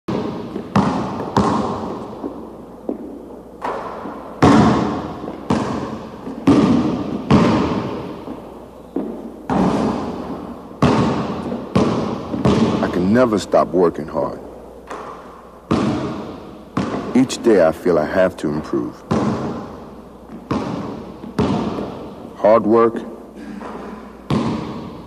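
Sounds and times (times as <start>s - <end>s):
basketball bouncing on hardwood: 0.1s - 12.9s, 14.9s - 17.2s, 19.1s - 22.3s, 23.6s - 25.0s.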